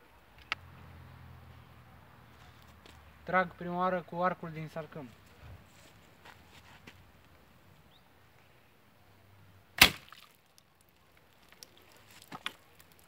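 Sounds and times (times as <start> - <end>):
arrow hitting bottles with a snap: 9.8 - 10.2.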